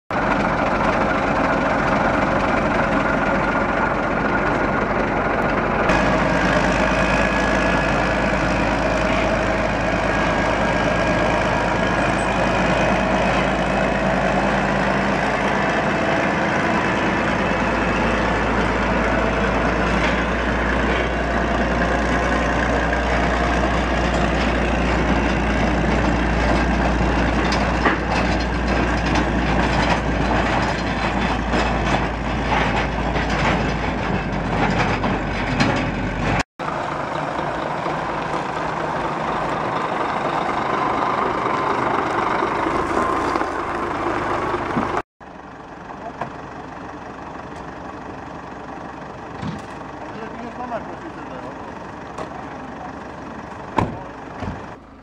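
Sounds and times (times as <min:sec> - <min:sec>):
locomotive diesel engine running: 0:00.1 - 0:55.0.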